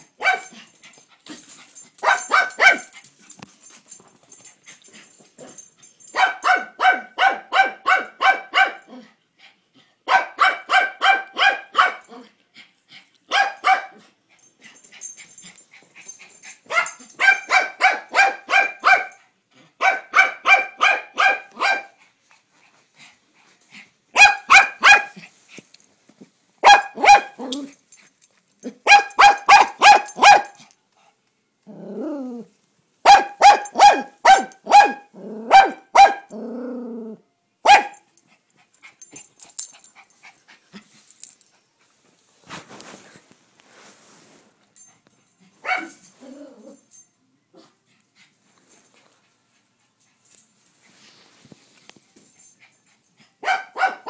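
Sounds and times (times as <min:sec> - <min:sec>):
small dog barking: 0:00.1 - 0:00.6, 0:02.0 - 0:02.9, 0:06.1 - 0:09.0, 0:10.1 - 0:12.2, 0:13.3 - 0:14.0, 0:16.7 - 0:19.2, 0:19.8 - 0:22.0, 0:24.2 - 0:25.2, 0:26.6 - 0:27.7, 0:28.7 - 0:30.6, 0:33.0 - 0:36.4, 0:37.6 - 0:38.1, 0:45.6 - 0:46.0, 0:53.4 - 0:54.0.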